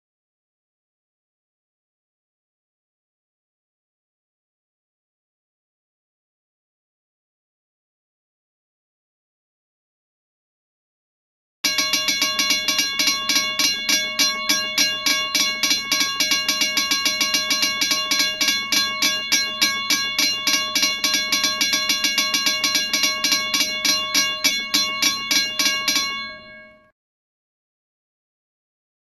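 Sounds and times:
railroad crossing bell ringing: 11.6 - 26.9.

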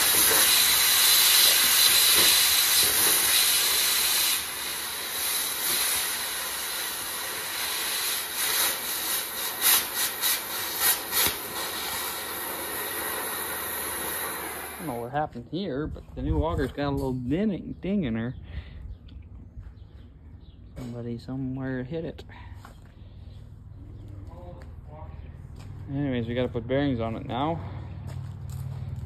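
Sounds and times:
sharp pops: 0.0 - 14.9
cutting torch hissing: 0.0 - 15.1.

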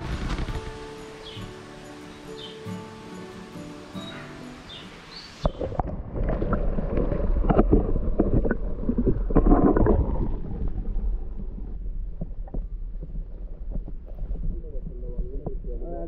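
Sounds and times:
underwater gurgling: 5.4 - 16.0
muffled underwater rumble: 5.5 - 16.0.

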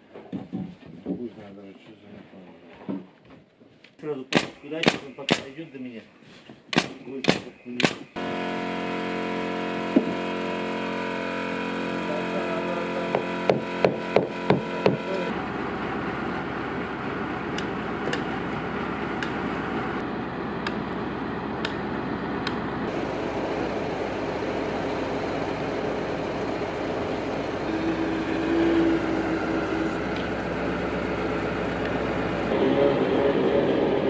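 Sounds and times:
sharp clicks: 4.3 - 5.5, 6.7 - 8.2
hydraulic whine: 7.5 - 34.0
crane engine running: 8.0 - 34.0.

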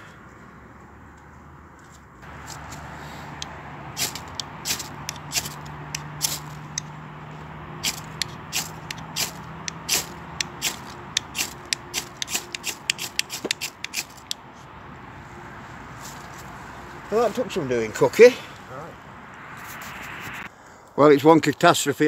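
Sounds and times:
knife scraping ferrocerium rod: 3.4 - 6.9, 7.8 - 14.4.

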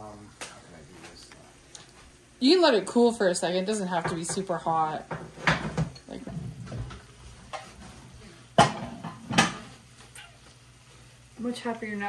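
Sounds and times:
kitchen knocks: 3.9 - 7.6, 8.6 - 9.7.

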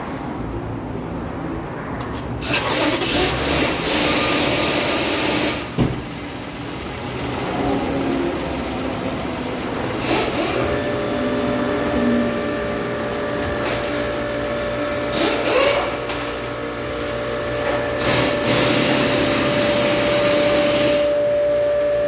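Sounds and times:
car engine starting and idling: 2.0 - 22.0.

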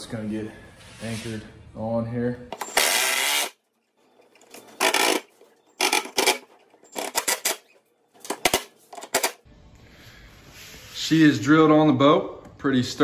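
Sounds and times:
impact driver driving screws: 2.6 - 3.6.

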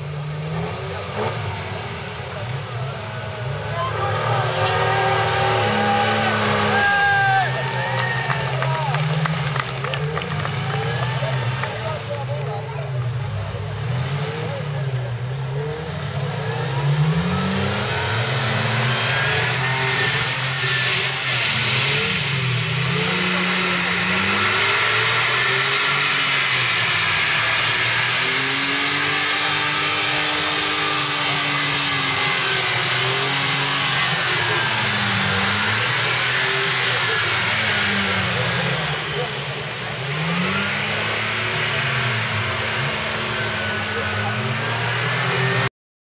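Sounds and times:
truck engine revving: 0.0 - 45.7.

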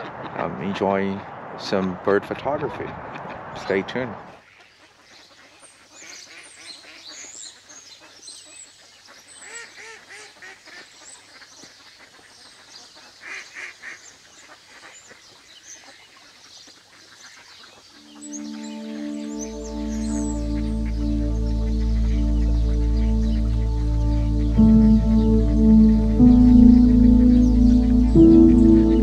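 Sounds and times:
small birds chirping: 14.0 - 29.0
ducks quacking: 18.0 - 29.0
geese honking: 18.0 - 29.0.

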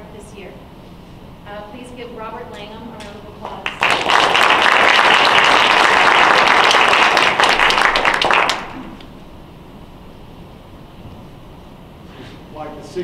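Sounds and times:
audience applauding: 3.5 - 9.1.

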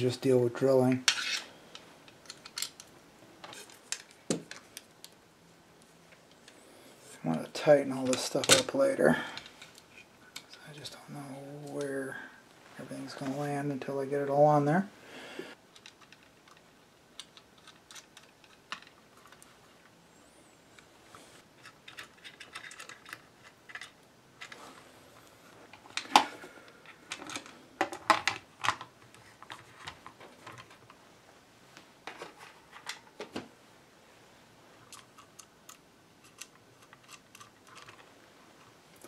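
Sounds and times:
metal parts clicking and knocking: 2.1 - 4.7, 15.7 - 19.4, 21.6 - 24.6, 34.9 - 38.1.

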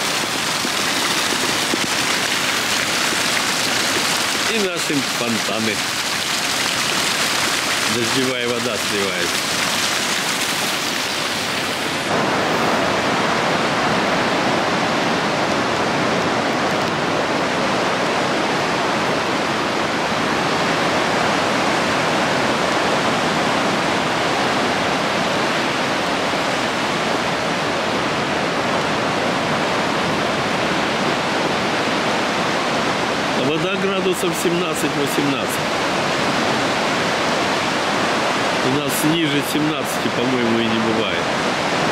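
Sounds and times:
surf breaking on a beach: 0.0 - 41.9.

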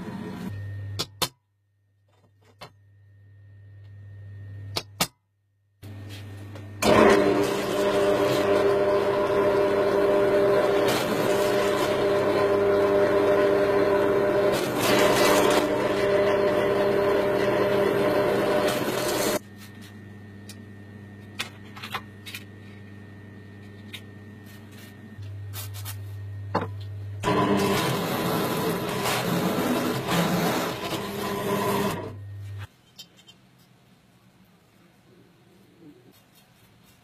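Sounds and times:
drill press whining through steel: 6.8 - 19.4, 27.2 - 32.6.

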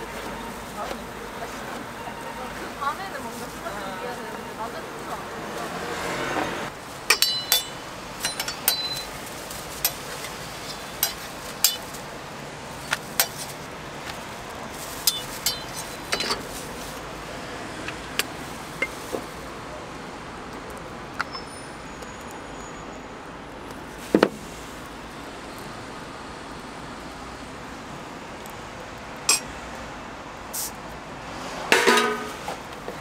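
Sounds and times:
utensils clicking on a griddle: 7.1 - 12.0, 12.8 - 13.6, 15.0 - 16.5
steady hiss: 30.5 - 30.9.

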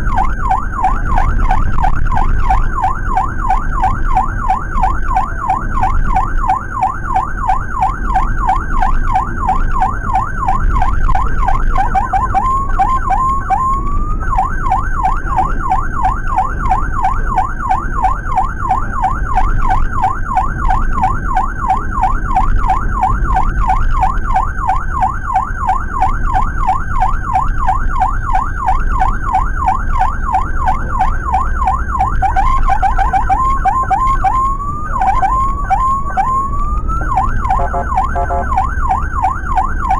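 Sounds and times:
electronic siren yelping: 0.0 - 39.9
engine and road noise: 0.0 - 39.9.

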